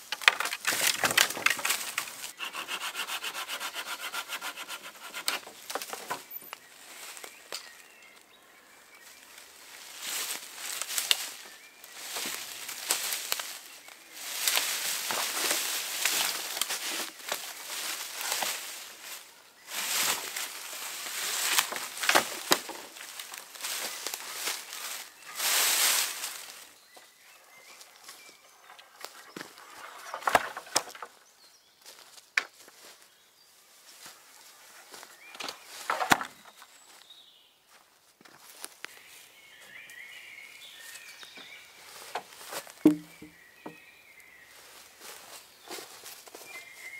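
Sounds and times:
twigs snapping: 0:00.0 - 0:02.3, 0:10.8 - 0:11.3, 0:14.4 - 0:18.8, 0:21.3 - 0:24.7
pole dragged through undergrowth: 0:00.0 - 0:07.4, 0:09.6 - 0:31.3
footsteps on dry leaves: 0:06.6 - 0:08.2, 0:09.0 - 0:31.1, 0:31.8 - 0:37.1, 0:40.6 - 0:43.7, 0:44.4 - 0:46.9.

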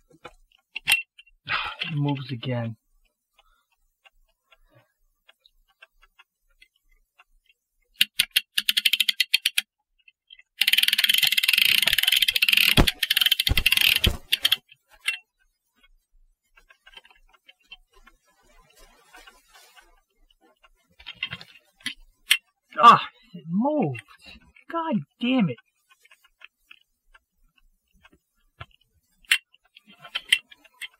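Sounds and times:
ratchet clicking rapidly: 0:08.0 - 0:09.6, 0:10.6 - 0:14.6.

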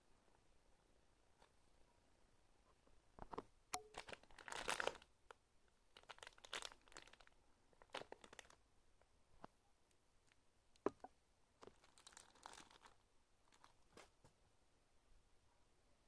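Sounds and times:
plastic bag crinkling: 0:03.8 - 0:05.1, 0:05.9 - 0:08.6, 0:11.6 - 0:14.0.

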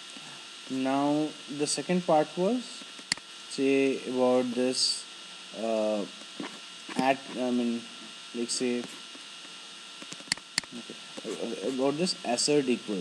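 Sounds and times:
electrical hum: 0:00.0 - 0:13.0
sharp clicks: 0:03.0 - 0:03.3, 0:10.0 - 0:10.8
person making hesitation sounds: 0:05.6 - 0:07.8, 0:10.7 - 0:13.0.

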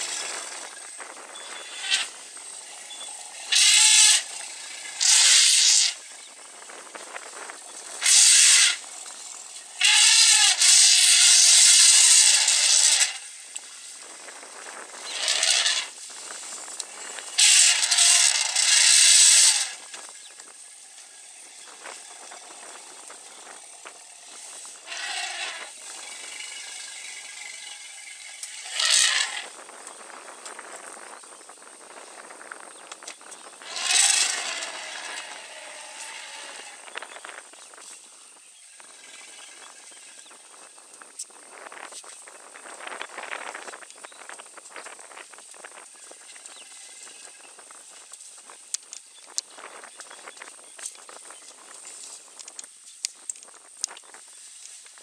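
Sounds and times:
elephants trumpeting: 0:01.4 - 0:06.0, 0:07.8 - 0:08.9, 0:09.7 - 0:13.4, 0:15.0 - 0:16.0, 0:16.8 - 0:19.9, 0:24.0 - 0:29.6, 0:33.6 - 0:37.0.

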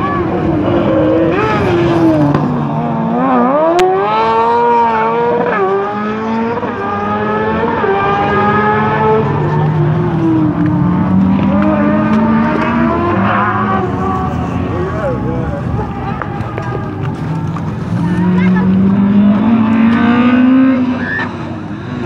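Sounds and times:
buggy engine revving hard: 0:00.0 - 0:16.0, 0:17.9 - 0:22.0.

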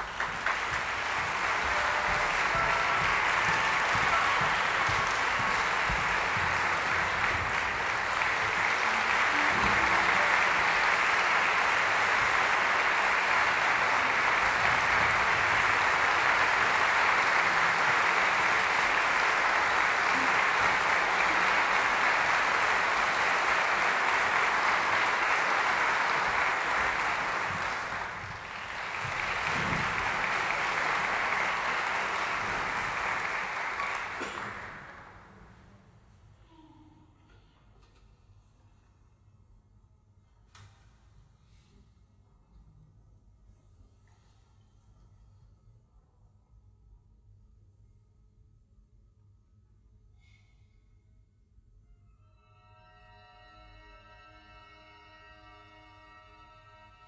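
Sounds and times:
audience applauding: 0:00.0 - 0:35.3.

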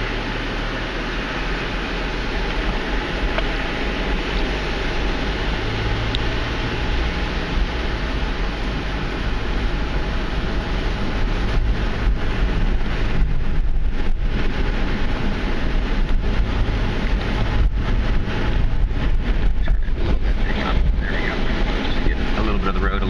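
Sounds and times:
car engine and tyre rumble: 0:00.0 - 0:23.0
wind buffeting microphone: 0:01.1 - 0:23.0.

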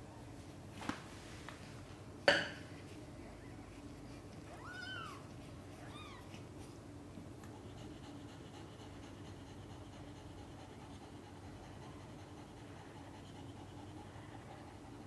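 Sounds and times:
kittens mewing: 0:04.4 - 0:06.6.

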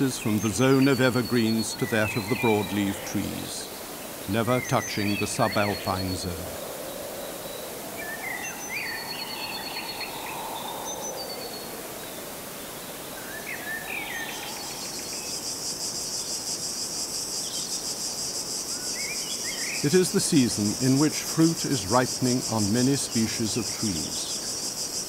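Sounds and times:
insect pulsing call: 0:00.0 - 0:25.0
small birds chirping: 0:00.0 - 0:25.0
high bird whistles: 0:07.2 - 0:11.8.

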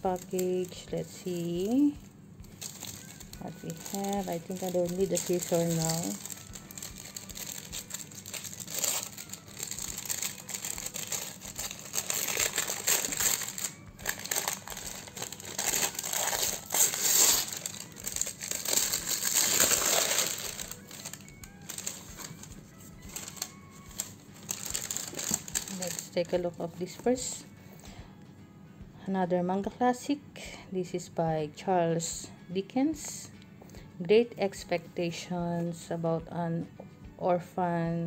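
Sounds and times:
wrapping paper crinkling and tearing: 0:00.0 - 0:26.5
faint background music: 0:00.0 - 0:38.0.

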